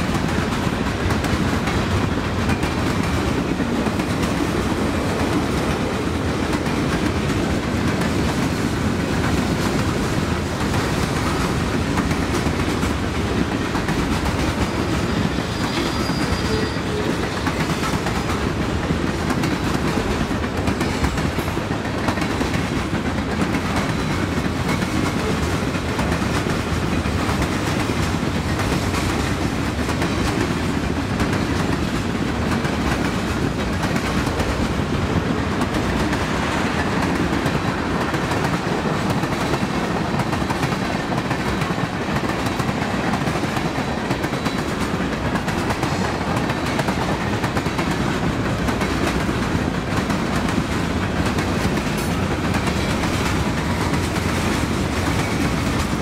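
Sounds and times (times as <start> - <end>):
freight train rolling past: 0.0 - 56.0
steel wheels clattering over rail joints: 0.0 - 56.0.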